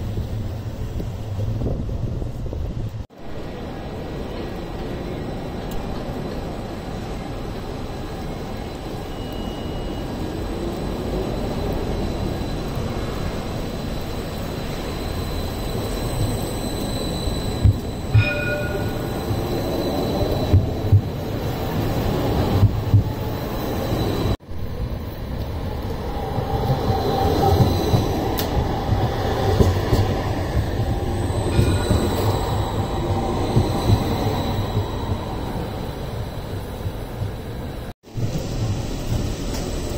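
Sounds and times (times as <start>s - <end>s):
tram wheel and motor rumble: 0.0s - 39.9s
high wheel squeal: 8.0s - 24.4s, 26.2s - 36.8s.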